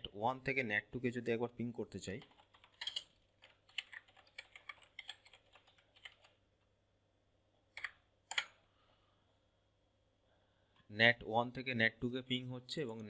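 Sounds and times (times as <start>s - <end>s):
typing on keyboard: 2.2s - 6.4s.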